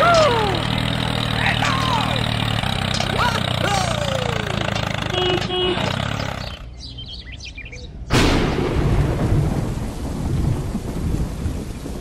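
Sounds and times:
birds chirping: 0.0 - 8.1
rumbling thunder: 8.1 - 12.0
thunderclap: 8.1 - 12.0
steady rain: 8.6 - 12.0.

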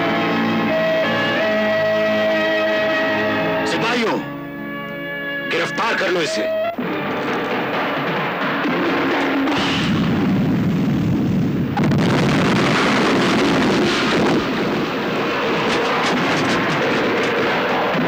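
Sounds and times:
rumbling explosion: 6.8 - 18.0.

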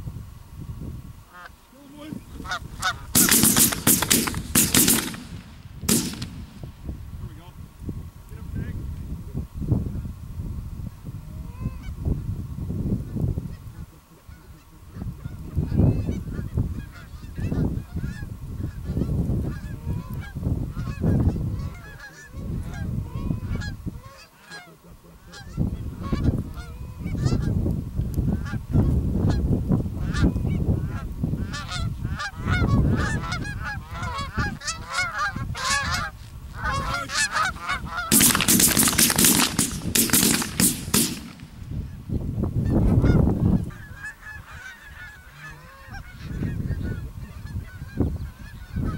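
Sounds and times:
geese honking: 1.3 - 6.3, 13.5 - 27.6, 30.0 - 42.0, 42.6 - 48.9.

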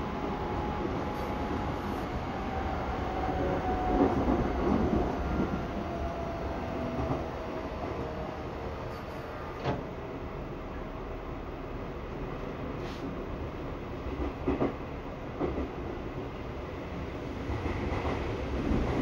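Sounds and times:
train wheels rumbling: 0.0 - 10.0.

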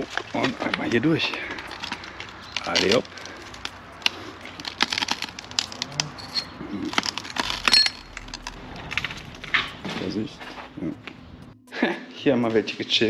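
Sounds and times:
footsteps crunching on broken glass: 0.0 - 11.6
glass piece clinking: 5.0 - 8.6.

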